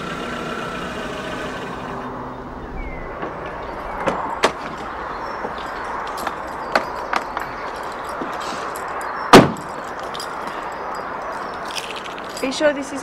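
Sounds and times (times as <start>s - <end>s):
car engine running: 0.0s - 2.2s.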